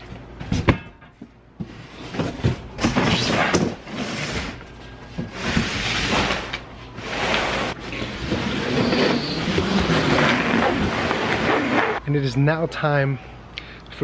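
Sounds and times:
cardboard box scraping on concrete: 0:05.3 - 0:12.0.

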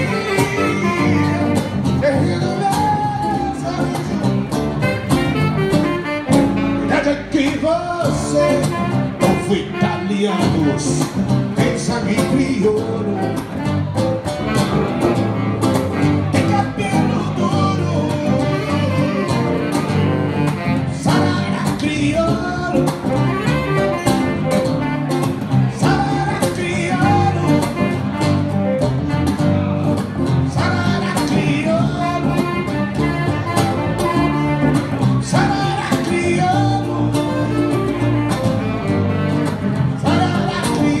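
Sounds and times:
saxophone melody: 0:00.0 - 0:41.0
steady bass line: 0:00.0 - 0:41.0
strummed guitar chords: 0:00.0 - 0:41.0.

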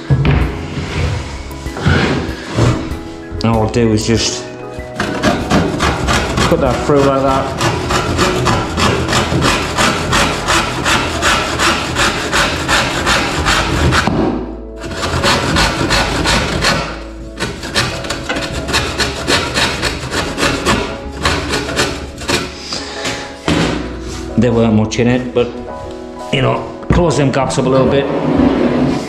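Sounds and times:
handsaw cutting wood: 0:05.0 - 0:14.2, 0:14.8 - 0:23.4.

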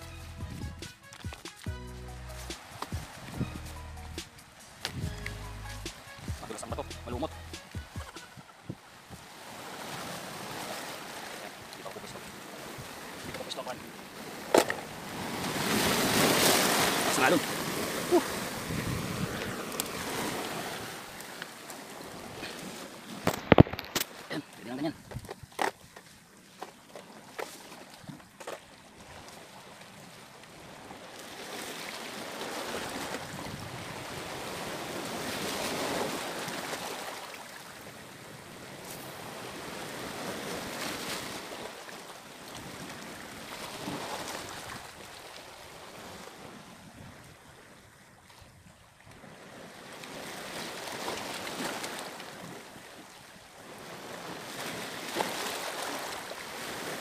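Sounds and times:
waves washing onto rocky shore: 0:02.5 - 0:03.4, 0:06.0 - 0:47.7, 0:49.2 - 0:57.0.

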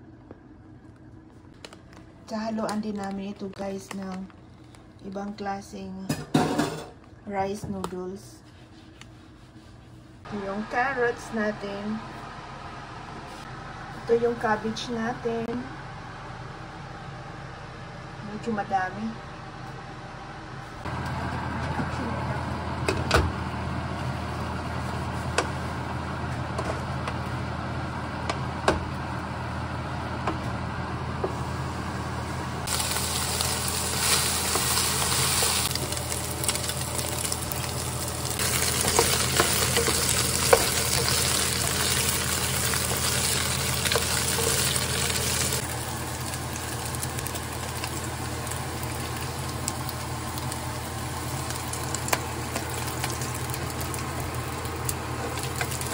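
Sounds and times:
low hum: 0:00.0 - 0:55.9
meat sizzling in a pan: 0:32.7 - 0:54.6
wooden spoon stirring: 0:38.4 - 0:45.6.

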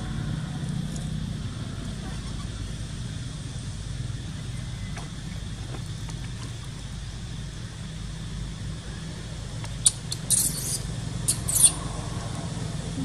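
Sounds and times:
low motor-like drone: 0:00.0 - 0:13.0
baby monkey squeaking: 0:09.8 - 0:11.8.

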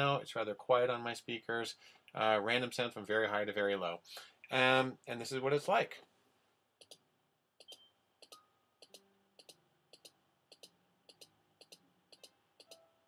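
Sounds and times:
mouse clicks: 0:06.8 - 0:07.0, 0:07.6 - 0:12.8.

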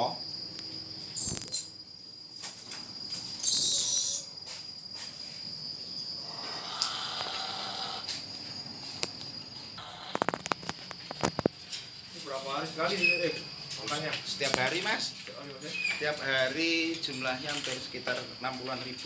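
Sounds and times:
parrot screech: 0:01.2 - 0:01.8, 0:03.4 - 0:04.3, 0:06.2 - 0:08.0
parrot whistle: 0:01.2 - 0:01.8, 0:03.4 - 0:04.3.

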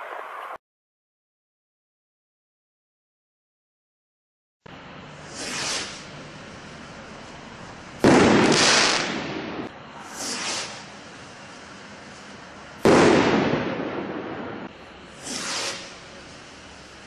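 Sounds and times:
rocket launching hiss: 0:05.2 - 0:06.2, 0:08.0 - 0:16.9
firework bursting with crackle: 0:05.2 - 0:17.0.

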